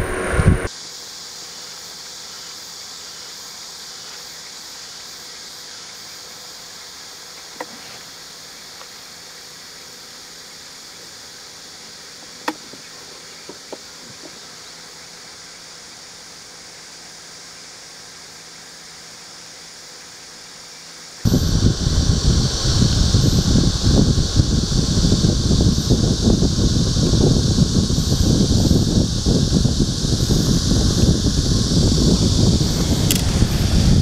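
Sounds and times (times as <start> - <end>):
crickets chirping: 0.0 - 34.0.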